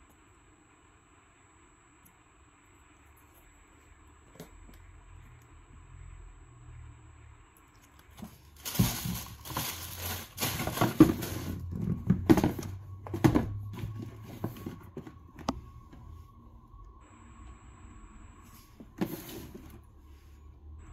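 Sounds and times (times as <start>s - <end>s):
tissue paper rustling: 8.2s - 11.7s.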